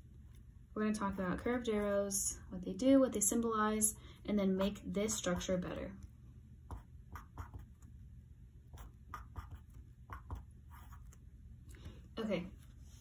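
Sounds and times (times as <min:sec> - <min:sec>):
pen scratching on paper: 0:06.7 - 0:07.8, 0:08.7 - 0:11.2.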